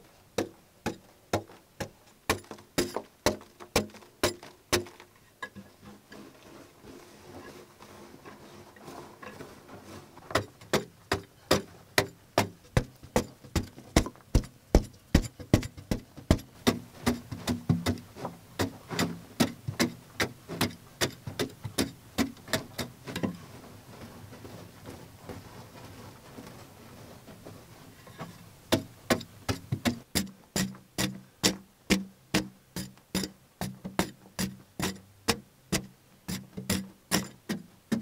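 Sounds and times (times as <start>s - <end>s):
loose earth sounds: 0.0s - 38.0s
pick striking hard earth: 0.4s - 5.1s, 10.2s - 23.5s, 28.2s - 38.0s.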